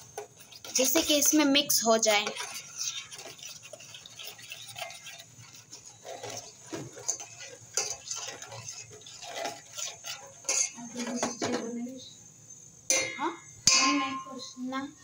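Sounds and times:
spoon clinking in steel pot: 0:12.9 - 0:14.3.

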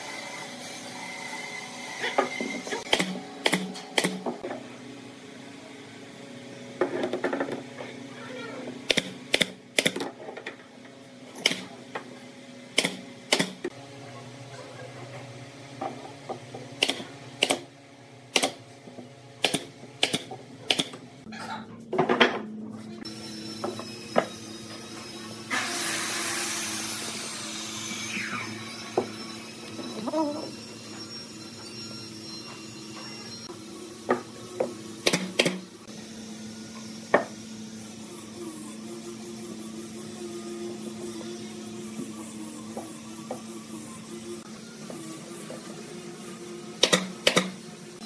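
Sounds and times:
nail gun shots: 0:02.9 - 0:04.2, 0:08.9 - 0:10.0, 0:12.8 - 0:13.6, 0:16.8 - 0:17.6, 0:18.3 - 0:18.6, 0:19.4 - 0:21.0.

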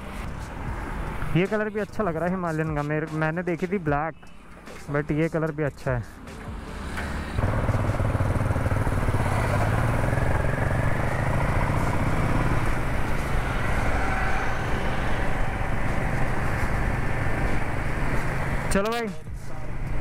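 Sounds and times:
road noise: 0:00.0 - 0:20.0
motorcycle engine cruising: 0:06.4 - 0:18.8.

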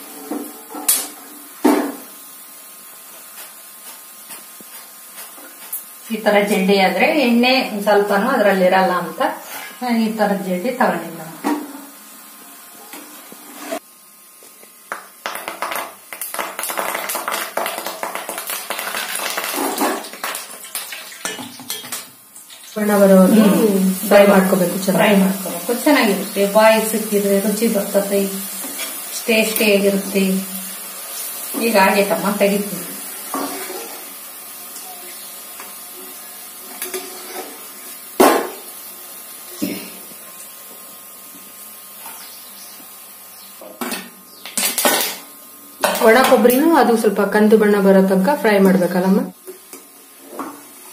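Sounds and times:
leaves crackling in hot oil: 0:00.9 - 0:09.7, 0:13.2 - 0:43.6.

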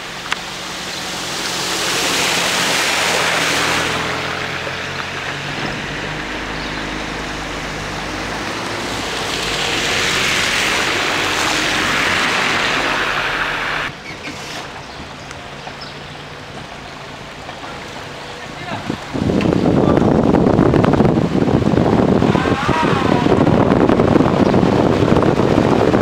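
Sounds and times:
tyres hissing through water: 0:00.0 - 0:19.9
low engine hum: 0:00.0 - 0:26.0
passing car: 0:00.0 - 0:26.0.

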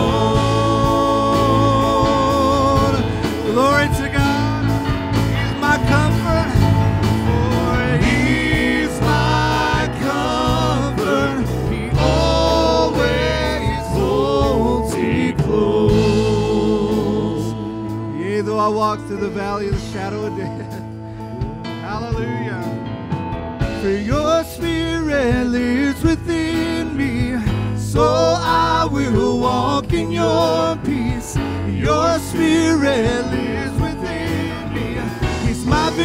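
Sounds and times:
voices singing with vibrato: 0:00.0 - 0:19.2, 0:27.8 - 0:36.0
acoustic guitar: 0:00.0 - 0:36.0
keyboard: 0:00.0 - 0:36.0
conga drums: 0:33.0 - 0:36.0.

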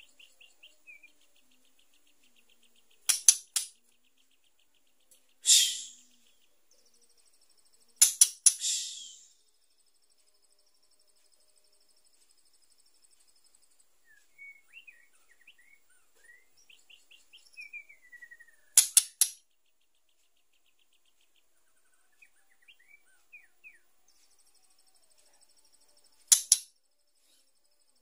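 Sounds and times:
bird trill: 0:00.0 - 0:09.8, 0:14.0 - 0:19.4, 0:20.2 - 0:27.5
bird chirps and twittering: 0:00.0 - 0:28.0
falling whistled glide: 0:05.4 - 0:06.0, 0:08.6 - 0:09.3.

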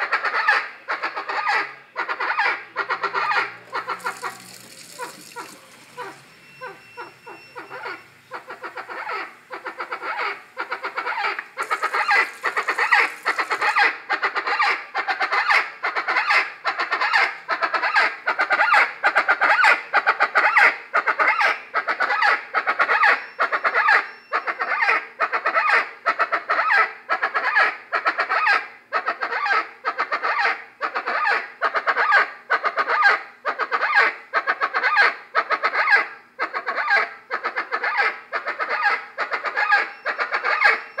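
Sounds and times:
chachalaca calling: 0:00.0 - 0:17.4, 0:29.2 - 0:41.0.

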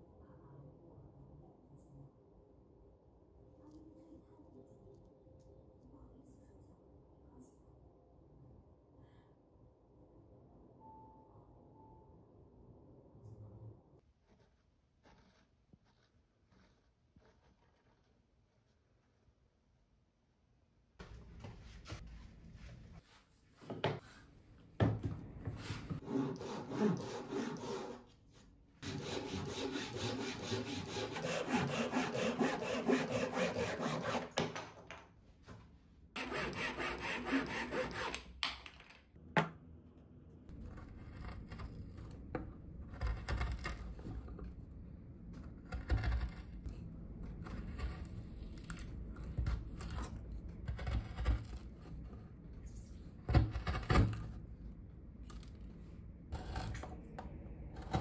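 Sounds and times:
chisel scraping wood: 0:14.2 - 0:18.8, 0:25.9 - 0:28.0, 0:28.8 - 0:34.5, 0:36.2 - 0:38.3, 0:40.5 - 0:44.5, 0:45.3 - 0:54.3
hand saw cutting wood: 0:26.0 - 0:28.0, 0:28.8 - 0:34.5, 0:36.2 - 0:38.2.

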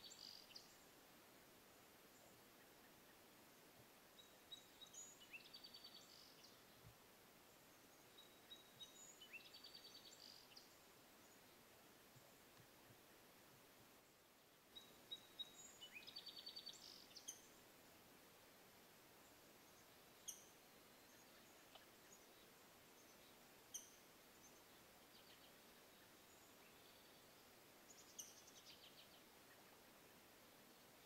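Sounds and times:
songbird trill: 0:00.0 - 0:01.0, 0:04.1 - 0:06.9, 0:07.5 - 0:13.0, 0:14.0 - 0:17.6, 0:19.2 - 0:31.0
outdoor hiss: 0:00.0 - 0:31.0.

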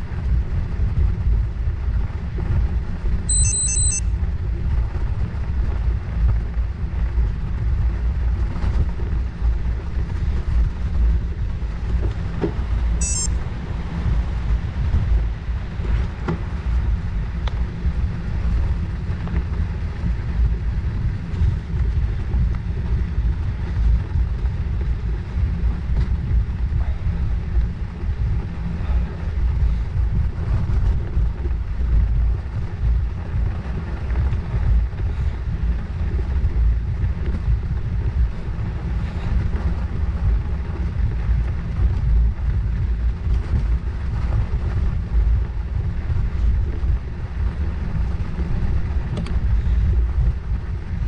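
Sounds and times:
wind buffeting microphone: 0:00.0 - 0:03.3, 0:04.1 - 0:51.0
bicycle tyres rolling: 0:13.9 - 0:51.0.

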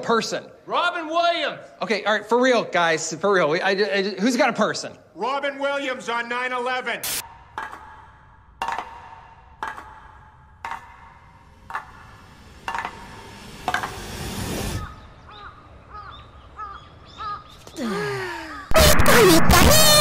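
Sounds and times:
swell of noise: 0:11.3 - 0:15.3.

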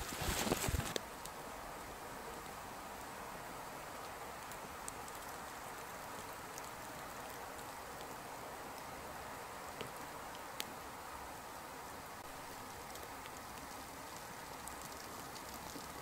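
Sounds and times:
fire crackling: 0:00.0 - 0:16.0.

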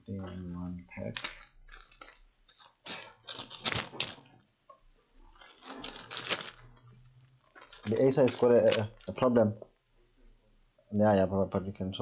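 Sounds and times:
laptop parts clicking and scraping: 0:01.0 - 0:04.3.

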